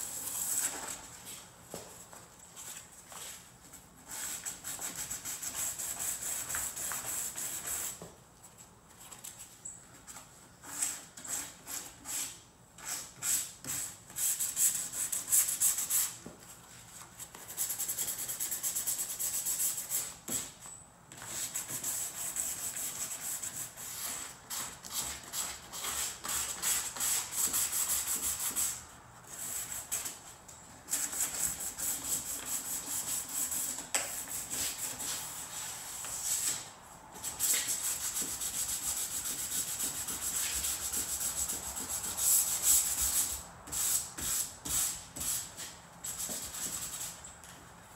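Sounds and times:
sandpaper rasping strokes: 37.3 - 47.2.

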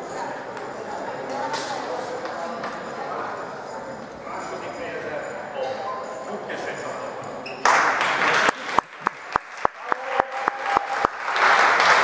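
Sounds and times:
audience applause: 7.6 - 12.0
sharp rhythmic claps: 7.6 - 12.0.

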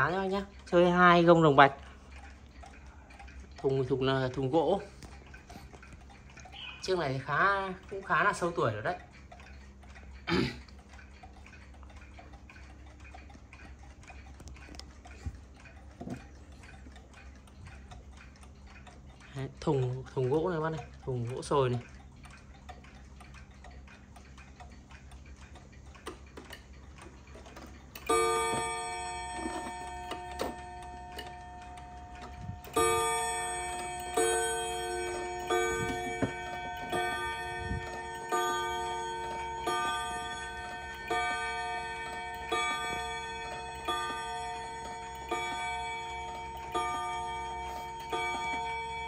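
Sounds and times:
faint clock ticking: 0.0 - 49.0
clock gong strokes: 28.0 - 49.0.

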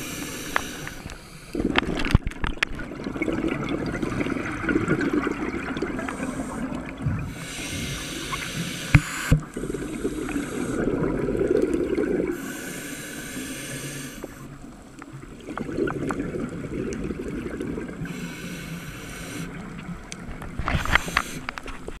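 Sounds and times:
diver breathing through regulator: 0.0 - 1.6, 6.0 - 11.0, 12.3 - 14.5, 18.0 - 19.6, 20.8 - 21.5
exhaled air bubbling: 0.0 - 22.0.

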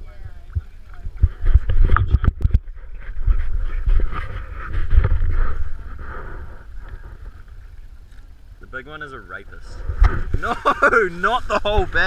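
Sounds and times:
wind rumble: 0.0 - 8.7.

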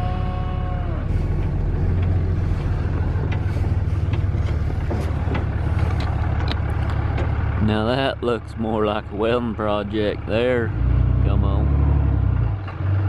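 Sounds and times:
truck engine rumble: 0.0 - 13.0
light knocks and rattles: 1.3 - 7.6.

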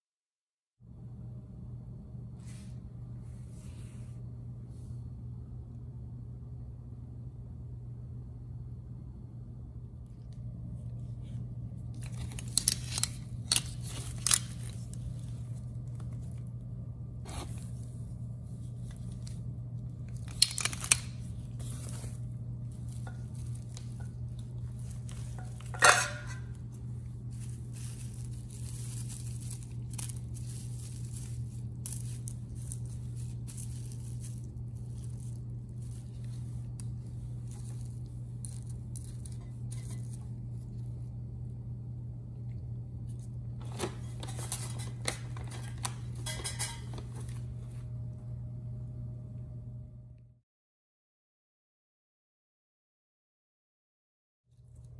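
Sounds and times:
steady low hum: 0.8 - 50.4
plastic wrap crinkling: 11.8 - 16.6, 17.3 - 41.0, 43.1 - 47.9
metal clinks and knocks: 25.4 - 26.5.

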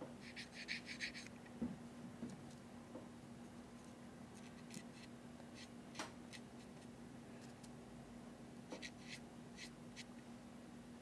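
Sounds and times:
steady low hum: 0.0 - 11.0
brush scratching pastel chalk: 0.2 - 1.3.

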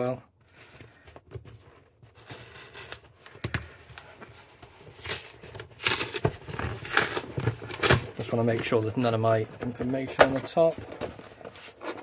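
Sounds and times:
tape tearing: 2.1 - 3.4, 4.8 - 9.1
cardboard scraping and rustling: 4.1 - 12.0.

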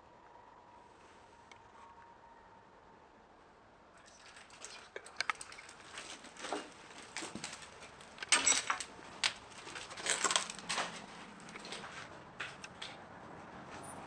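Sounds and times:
footsteps crunching on broken glass: 5.4 - 12.6.

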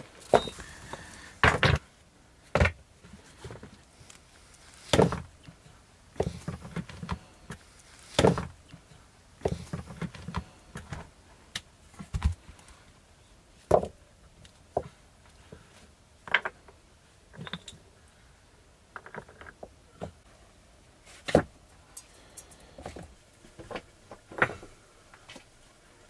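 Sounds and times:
small knocks and rustling: 2.5 - 11.1, 21.1 - 25.5.

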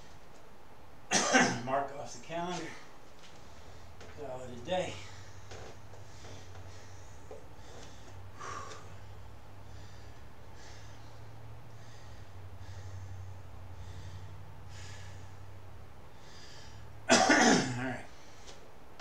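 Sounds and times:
steady low hum: 0.0 - 19.0
man breathing hard: 2.6 - 4.2, 4.9 - 17.1.

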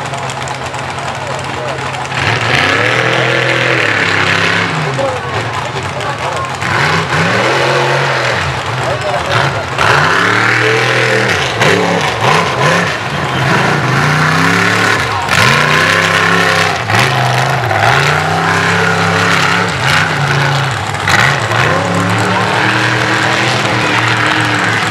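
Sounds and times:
buggy engine revving hard: 0.0 - 24.9.

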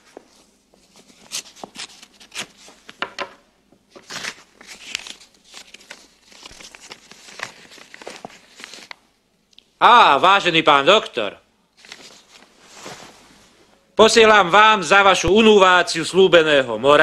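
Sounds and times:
paper rustling and crackling: 0.3 - 3.3, 3.9 - 9.0, 11.8 - 13.2.

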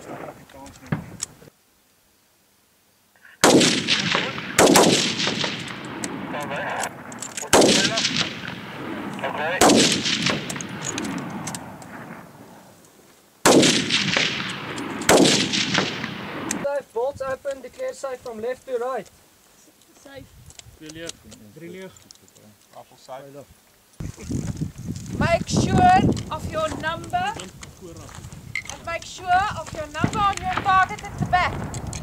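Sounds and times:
rifle shots echoing: 3.4 - 12.7, 13.4 - 16.6, 30.0 - 32.0.

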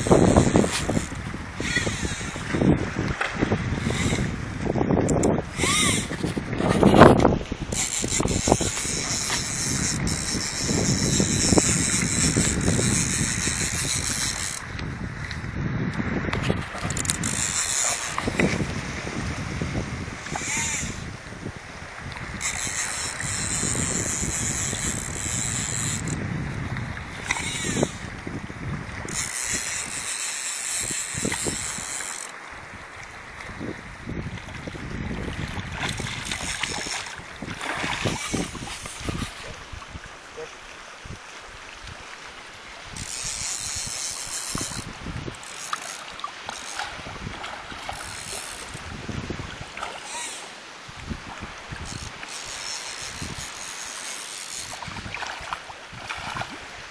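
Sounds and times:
wind buffeting microphone: 0.0 - 42.0, 42.7 - 49.9, 50.8 - 53.7, 54.5 - 56.9
waves lapping at boat hull: 0.0 - 56.9
fish splashing water: 35.4 - 39.7, 41.9 - 56.9.

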